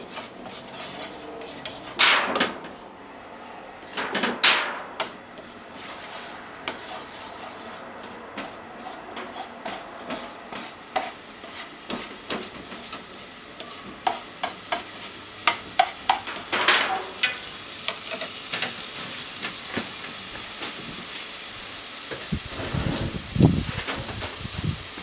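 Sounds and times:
wooden spatula scraping a pan: 0:00.0 - 0:02.9, 0:03.8 - 0:21.0
meat sizzling in a frying pan: 0:05.5 - 0:25.0.

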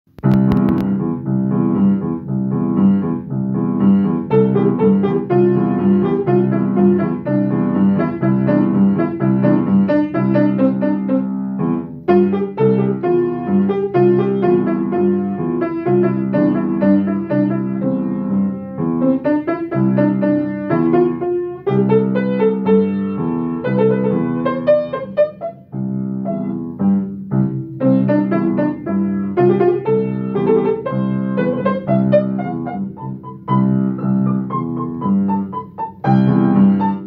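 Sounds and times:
piano playing: 0:00.1 - 0:37.0
brief clicks: 0:00.2 - 0:00.9.

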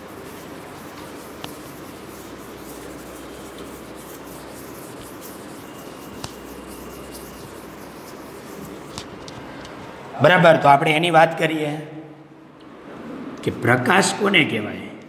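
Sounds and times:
duster rubbing blackboard: 0:00.0 - 0:09.6.

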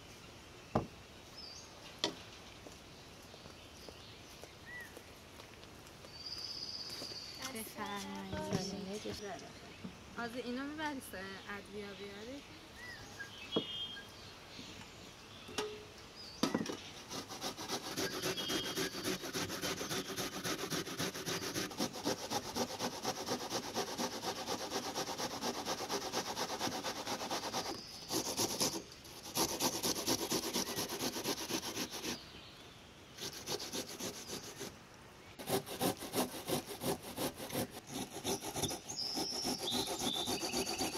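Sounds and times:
onion grated on metal grater: 0:17.4 - 0:32.0, 0:35.4 - 0:40.9.

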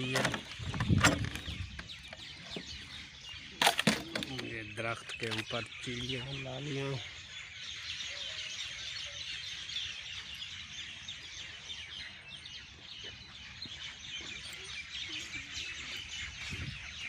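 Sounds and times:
chorus of birds chirping: 0:00.0 - 0:17.0
wind rumble on microphone: 0:00.4 - 0:02.9, 0:16.1 - 0:17.0.

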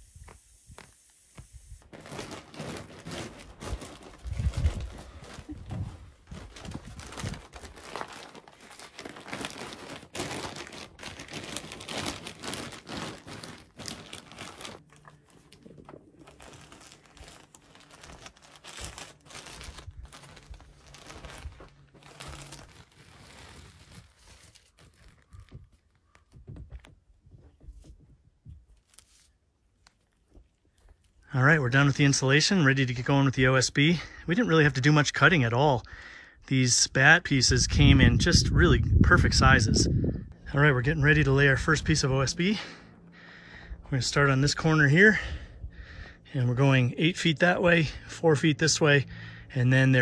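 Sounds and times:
plastic wrapping crinkling: 0:01.7 - 0:26.9, 0:28.7 - 0:31.2.

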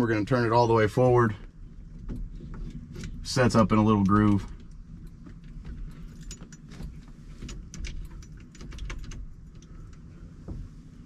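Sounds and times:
small metal clicks: 0:04.0 - 0:10.1.

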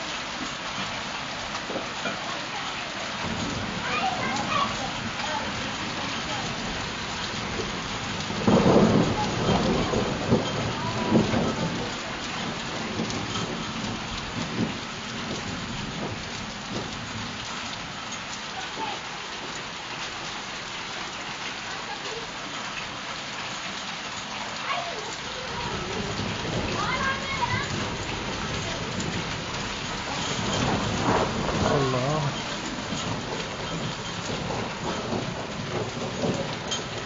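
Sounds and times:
thunder rumble: 0:03.0 - 0:17.5, 0:25.4 - 0:37.0
snow pattering on ground: 0:30.0 - 0:32.4.

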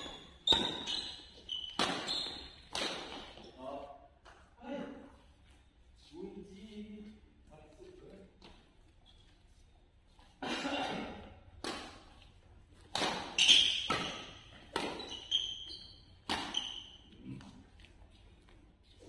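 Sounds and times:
rackets hitting shuttlecock: 0:00.0 - 0:03.6, 0:11.4 - 0:17.1
shoes squeaking on court floor: 0:00.0 - 0:04.5, 0:11.6 - 0:19.0.

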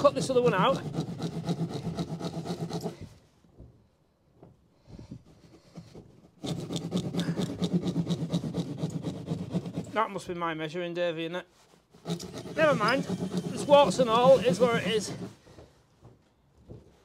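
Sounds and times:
hand saw cutting plasterboard: 0:00.0 - 0:03.2, 0:05.2 - 0:10.2, 0:11.9 - 0:15.6.

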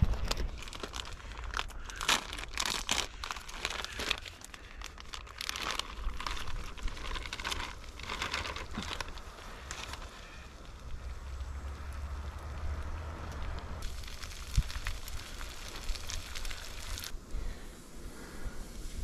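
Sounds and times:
plastic pouch crinkling and tearing: 0:00.0 - 0:17.1.

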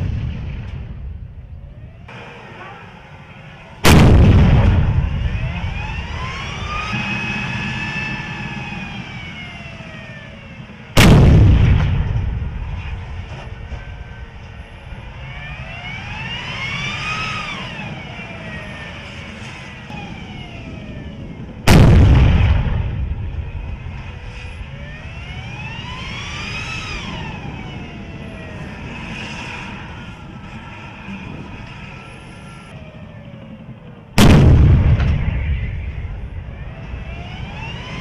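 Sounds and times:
tank gun firing with echo: 0:03.8 - 0:05.2, 0:11.0 - 0:12.6, 0:21.7 - 0:23.3, 0:34.2 - 0:36.2.

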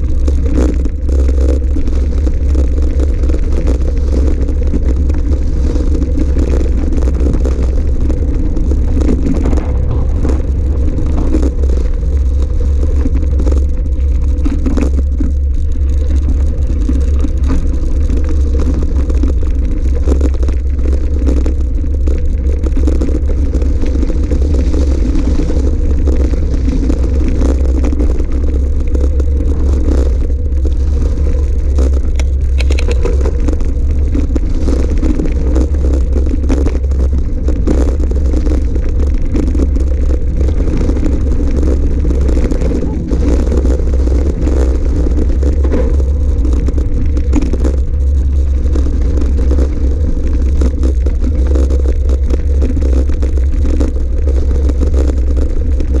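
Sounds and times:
wind rumble on microphone: 0:00.0 - 0:56.0
tyres crunching on gravel: 0:06.8 - 0:17.7.

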